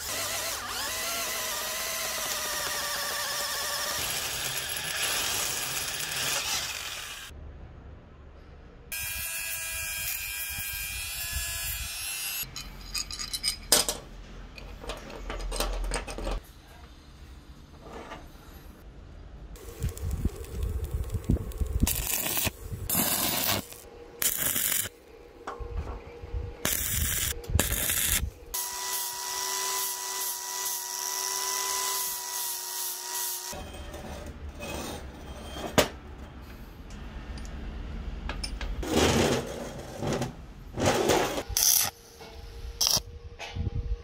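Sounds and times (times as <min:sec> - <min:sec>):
angle grinder grinding steel: 0:00.0 - 0:07.3
metal parts knocking and clinking: 0:12.5 - 0:16.4
arc welding crackling: 0:19.6 - 0:25.0, 0:26.6 - 0:33.4, 0:42.8 - 0:43.0.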